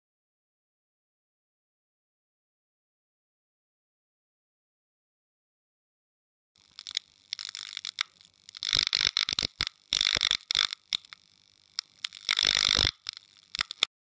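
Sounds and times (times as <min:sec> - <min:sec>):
sharp clicks: 0:06.6 - 0:13.9
crackling static: 0:06.6 - 0:14.0.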